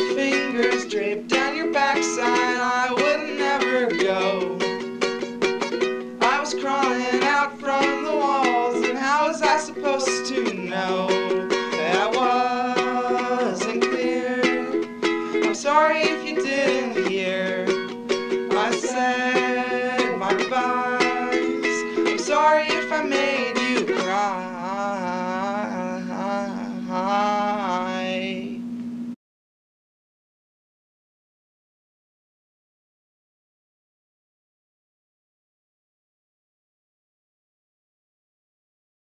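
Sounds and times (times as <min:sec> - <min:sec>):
acoustic song with plucked strings: 0:00.0 - 0:28.6.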